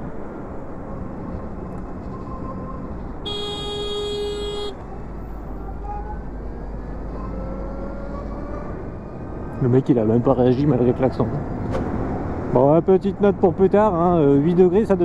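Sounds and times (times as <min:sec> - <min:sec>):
wind and road noise: 0:00.0 - 0:15.0
motorcycle horn blast: 0:03.2 - 0:04.8.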